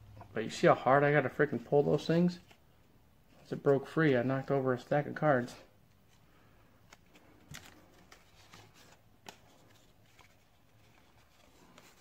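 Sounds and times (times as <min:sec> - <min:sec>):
cards and wrapper rustling: 0:05.8 - 0:12.0.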